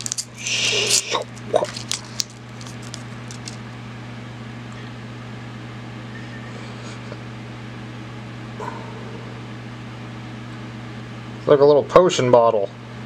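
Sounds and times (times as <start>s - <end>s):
foil wrapper crinkling: 0.0s - 3.6s
steady low hum: 0.0s - 13.0s.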